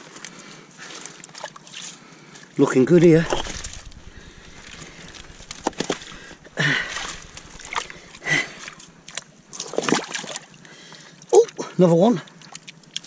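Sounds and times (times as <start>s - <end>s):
water sloshing and splashing: 0.8s - 2.4s, 5.2s - 10.7s.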